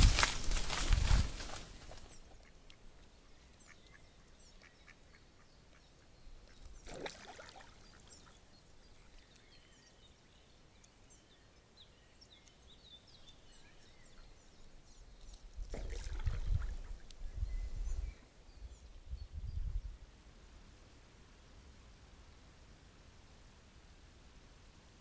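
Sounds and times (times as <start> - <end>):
small birds chirping: 1.8 - 20.0
duck splashing in water: 6.8 - 8.3, 15.7 - 16.9.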